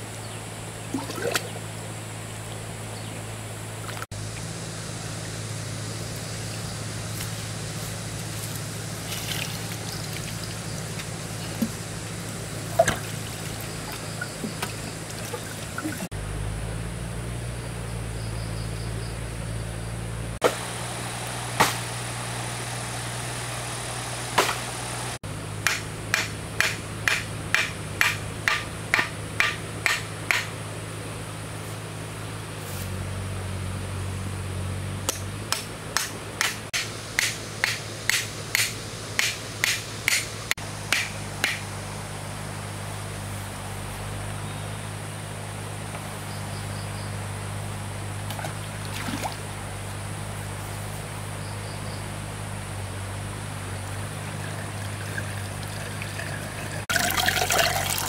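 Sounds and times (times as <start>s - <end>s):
steady low hum: 0.0s - 58.0s
sharp knocks: 25.6s - 30.5s, 40.9s - 41.6s.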